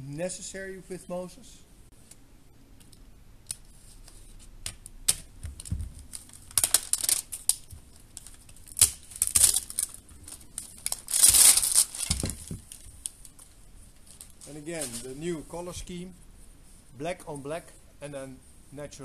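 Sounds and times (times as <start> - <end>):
plastic packaging crinkling: 5.4 - 15.3.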